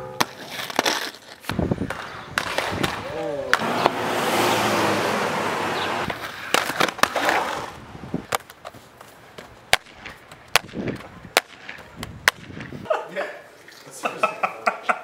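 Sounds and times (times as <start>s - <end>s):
skates knocking on concrete: 0.2s - 4.0s, 6.1s - 12.8s
skate wheels rolling on concrete: 0.2s - 14.9s.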